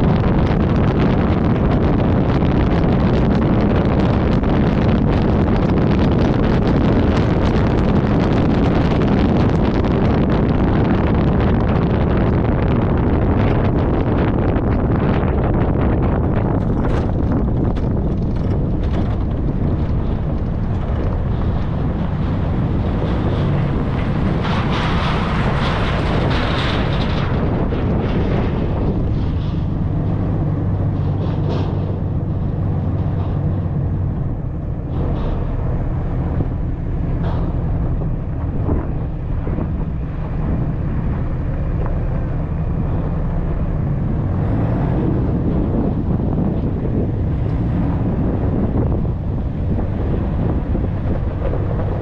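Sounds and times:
engine and tyre rumble: 0.0 - 52.0
gravel clicks and knocks: 0.0 - 52.0
wind buffeting microphone: 0.0 - 52.0.

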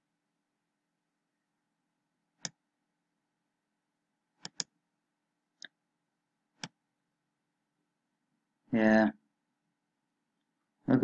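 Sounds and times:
computer mouse clicks: 2.4 - 2.6, 4.4 - 4.7, 6.6 - 6.8.

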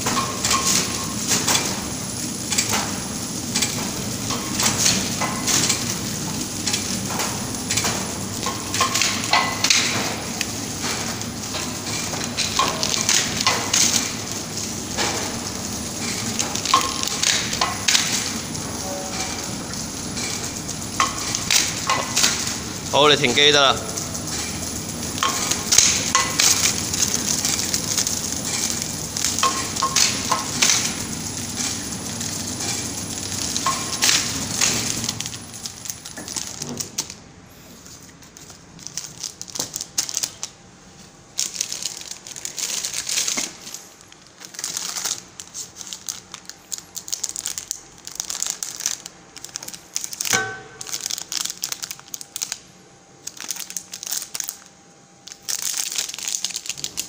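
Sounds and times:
machinery hum: 0.0 - 55.5
plastic film crinkling: 3.4 - 57.0.

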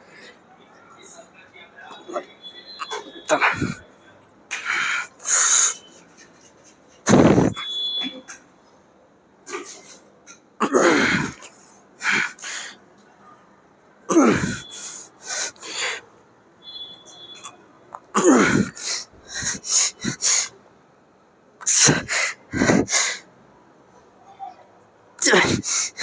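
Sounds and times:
man grunting: 2.9 - 3.8, 10.6 - 11.4, 14.1 - 14.6, 18.2 - 20.0, 25.2 - 26.0
man breathing: 4.5 - 5.8, 11.1 - 12.8, 14.3 - 16.0, 18.4 - 20.6, 21.6 - 23.2, 25.4 - 26.0.

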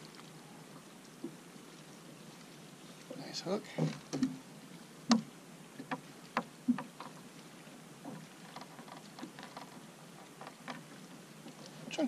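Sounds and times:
low background hiss: 0.0 - 12.0
taps and knocks on boat deck: 5.1 - 7.2
faint ticks: 8.0 - 11.8.

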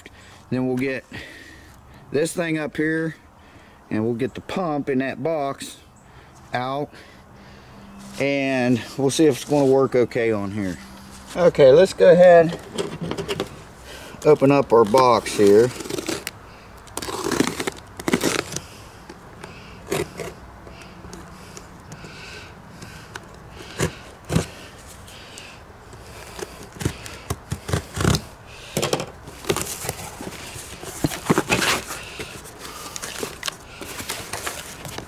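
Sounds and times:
cardboard and tape crackling: 14.2 - 22.0, 22.8 - 25.1, 25.9 - 28.4, 29.2 - 35.0
blade slitting packing tape: 14.9 - 18.7, 26.2 - 28.3, 29.4 - 35.0.

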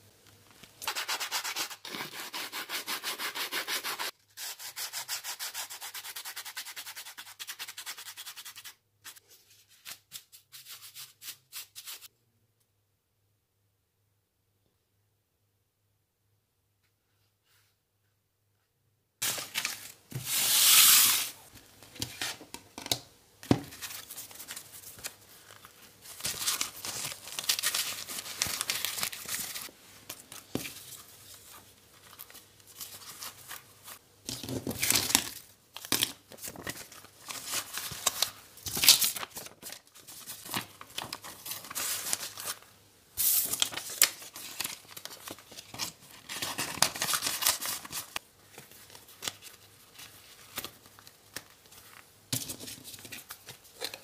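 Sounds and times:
banknotes rustling and crinkling: 19.2 - 22.6, 23.4 - 54.0.

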